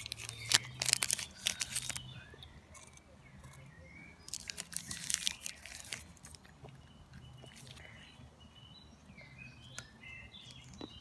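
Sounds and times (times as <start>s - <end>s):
candy wrapper crackling: 0.0s - 2.1s, 4.3s - 6.5s
toffee bar crunching: 0.0s - 3.0s, 4.2s - 6.6s.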